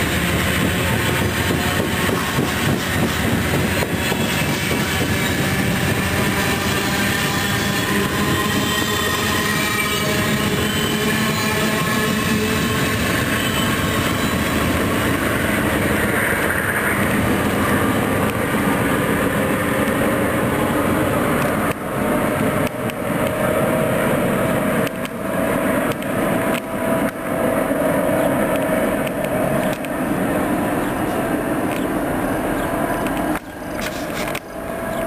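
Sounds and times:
passenger train rolling past: 0.0 - 35.0.

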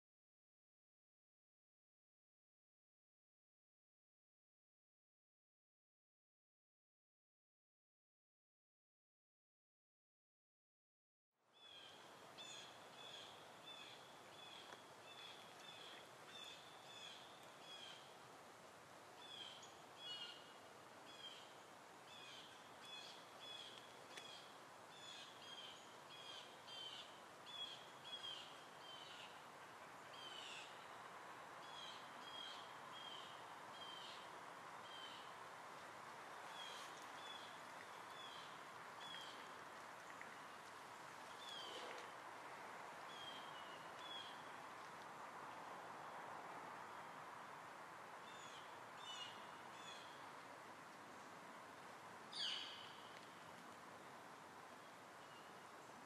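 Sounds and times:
steady background hiss: 11.5 - 56.0
bird chirping: 52.4 - 53.0.

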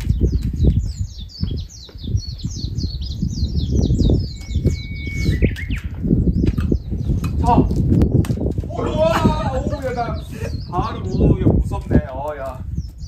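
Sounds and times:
songbird chirping: 0.0 - 8.3
bird whistling a steady note: 0.8 - 6.5.

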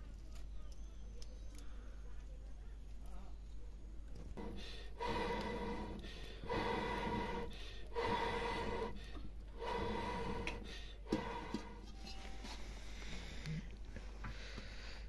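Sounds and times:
breath blown through bamboo tube: 4.4 - 11.9.

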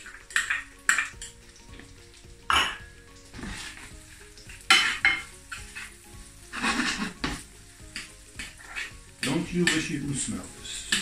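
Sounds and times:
onions sizzling in pan: 0.0 - 11.0
spatula scraping pan: 3.4 - 3.9, 4.6 - 9.9.

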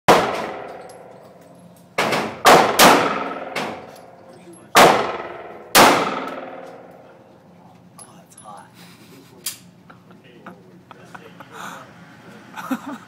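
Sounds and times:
pistol shots echoing indoors: 0.1 - 4.1, 4.7 - 7.1.

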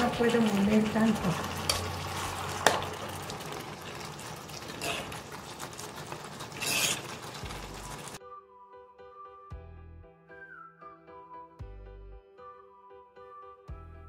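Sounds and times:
food sizzling in a skillet: 0.0 - 8.2
utensil scraping a pan: 4.3 - 8.2
background music: 7.4 - 14.0.

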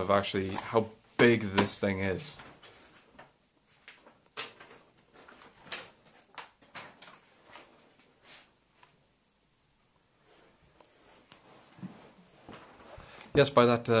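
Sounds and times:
paper rustling and crackling: 0.0 - 8.5.

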